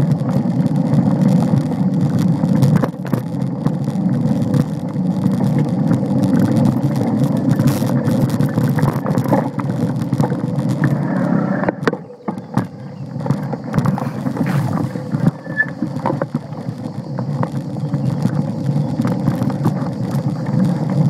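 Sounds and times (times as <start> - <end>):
bike knocking over bumps: 0.0 - 21.0
bike rattling: 0.0 - 21.0
bike tyres rumbling on dirt: 0.0 - 21.0.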